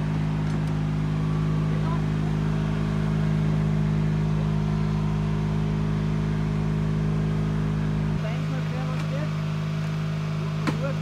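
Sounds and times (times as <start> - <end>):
small engine droning: 0.0 - 11.0.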